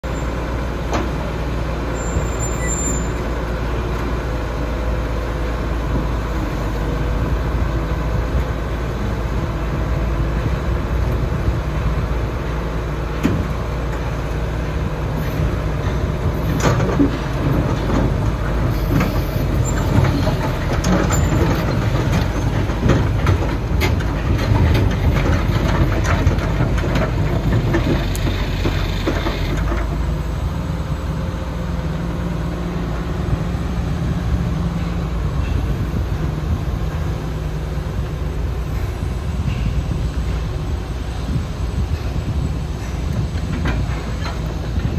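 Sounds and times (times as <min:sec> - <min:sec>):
excavator diesel engine rumbling: 0:00.0 - 0:44.9
metal clanks and knocks: 0:15.8 - 0:30.1.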